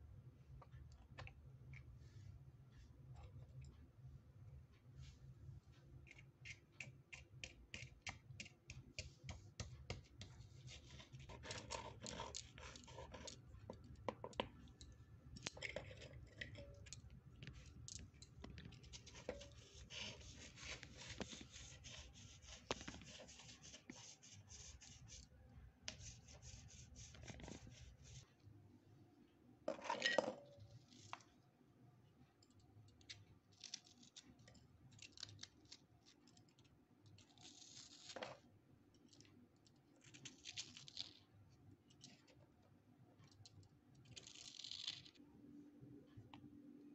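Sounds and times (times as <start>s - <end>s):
spoon scraping mortar: 6.1s - 14.4s, 15.4s - 17.6s, 18.7s - 25.2s.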